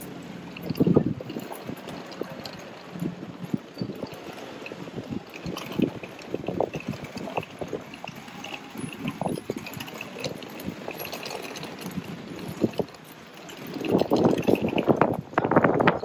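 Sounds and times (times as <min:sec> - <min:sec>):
suitcase wheels rattling on paving: 0:00.0 - 0:16.0.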